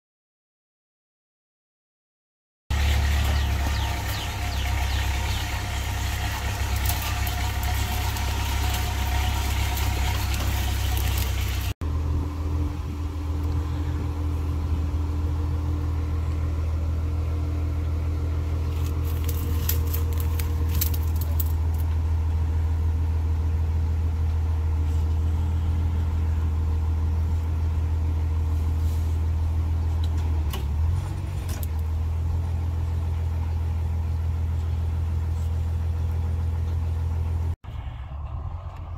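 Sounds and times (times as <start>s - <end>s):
winch pulling: 2.7s - 11.8s, 18.6s - 21.9s
truck engine idling: 2.7s - 38.9s.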